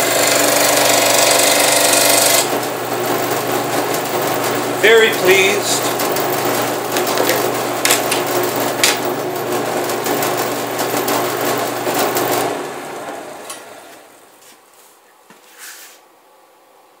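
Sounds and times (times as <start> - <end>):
scroll saw running: 0.0 - 12.7.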